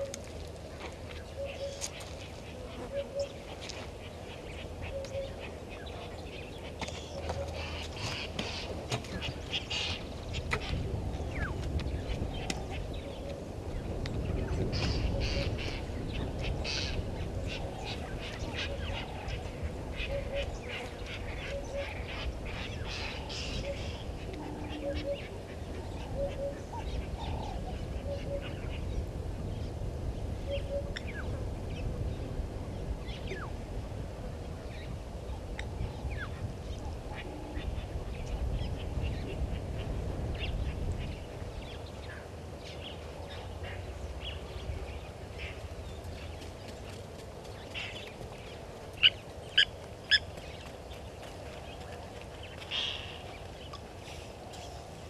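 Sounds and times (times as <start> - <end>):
birds chirping and whistling: 1.2 - 2.1, 14.2 - 19.4, 20.0 - 25.3.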